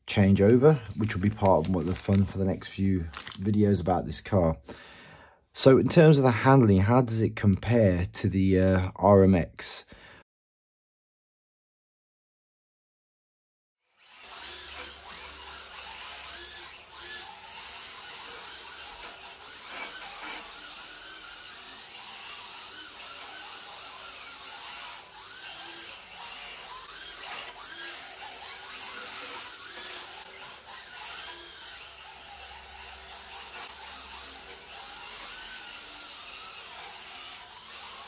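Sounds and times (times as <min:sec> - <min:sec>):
toy car electric motors whining: 0:13.8 - 0:38.0.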